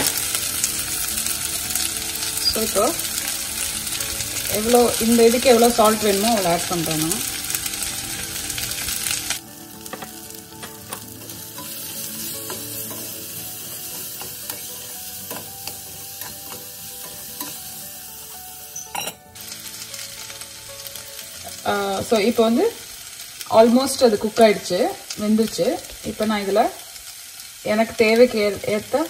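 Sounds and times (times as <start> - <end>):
vegetables sizzling in oil: 0.0 - 29.0
metal lid clanking on pan: 18.8 - 19.2.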